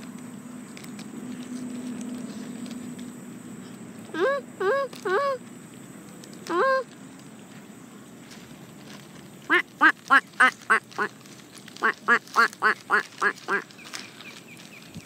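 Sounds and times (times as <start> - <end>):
duck quacking loudly: 9.5 - 11.1, 11.8 - 13.6.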